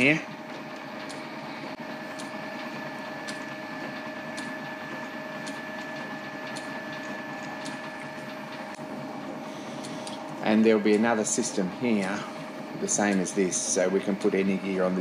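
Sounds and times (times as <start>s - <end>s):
lathe two-tone whine: 0.0s - 15.0s.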